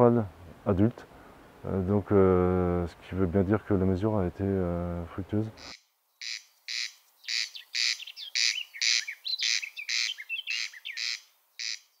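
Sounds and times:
birds chirping: 2.8 - 12.0
corncrake rasping call: 5.5 - 12.0.

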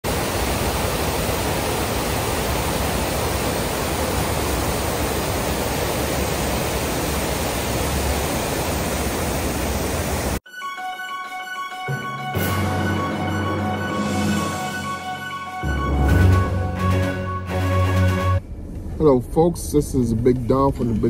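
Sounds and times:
waterfall and rapids rushing: 0.0 - 10.4.

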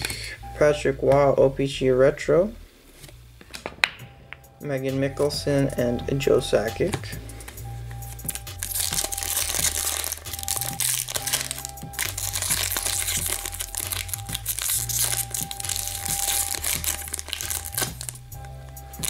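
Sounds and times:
background music with bass: 3.2 - 19.0
foil wrapper crinkling and tearing: 8.1 - 19.0.

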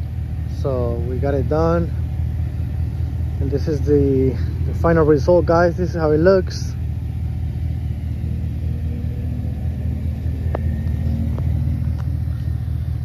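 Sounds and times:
pickup engine idling: 0.0 - 13.0.

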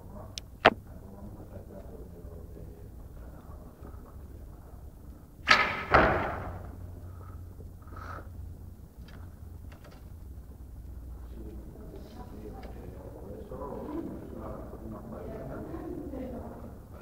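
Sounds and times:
arrow thudding into target: 5.4 - 6.7.

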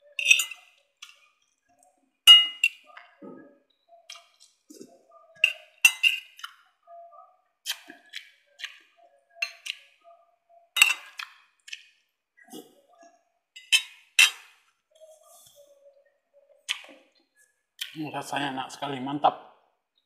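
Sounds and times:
cutlery clinking on ceramic plate: 0.2 - 0.7, 2.3 - 2.8, 5.4 - 6.3, 10.8 - 11.3, 13.6 - 14.5.

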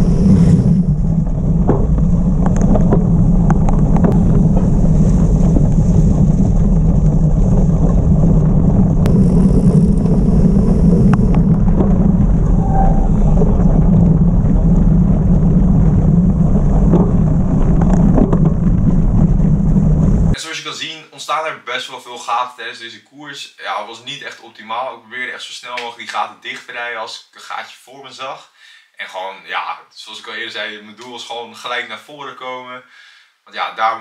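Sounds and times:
bike tyres on dirt road: 0.0 - 20.4
wind buffeting microphone: 0.0 - 20.4.

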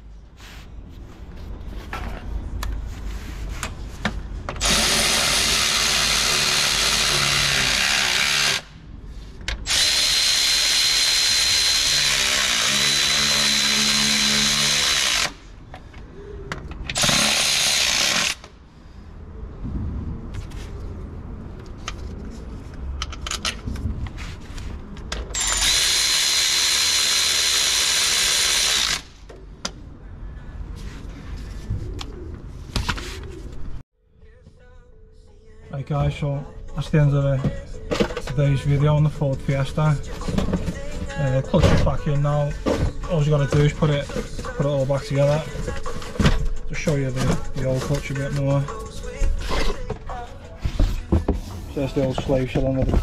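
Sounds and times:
power tool whining: 4.6 - 8.8, 9.6 - 15.5, 25.4 - 29.2.

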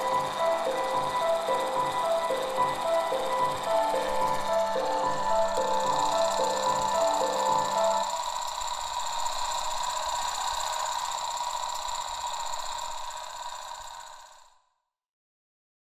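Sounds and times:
music: 0.0 - 8.5
high hissing drone: 0.0 - 14.2.

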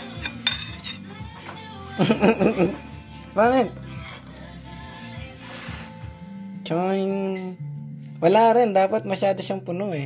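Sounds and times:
metal spoon clinking against bowl: 0.0 - 1.1
background music: 0.0 - 10.0.

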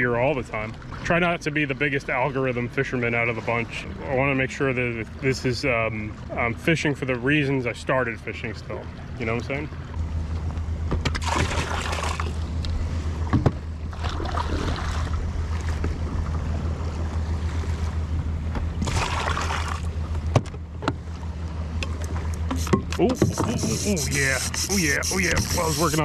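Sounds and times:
low hum: 0.0 - 26.0
water rushing: 11.1 - 20.3, 21.0 - 26.0
seawater splashing: 11.1 - 26.0.

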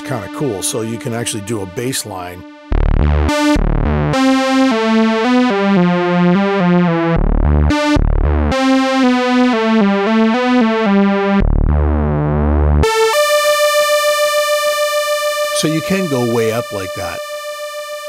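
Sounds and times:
synth bass line: 0.0 - 18.0.

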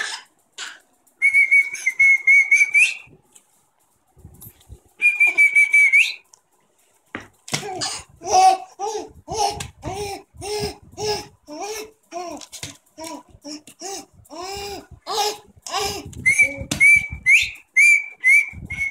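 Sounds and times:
baby laughing: 7.5 - 16.8.

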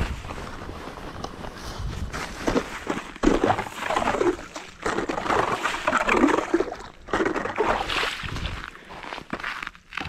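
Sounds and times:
slush splashing and crunching: 2.4 - 10.0.

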